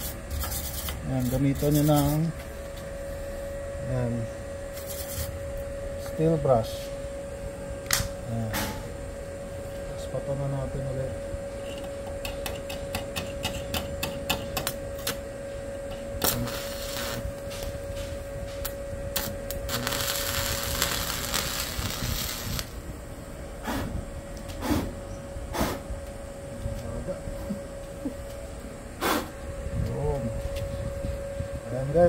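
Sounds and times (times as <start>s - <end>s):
welding arc crackling and sizzling: 0.0s - 2.3s, 4.7s - 6.4s, 15.9s - 22.8s.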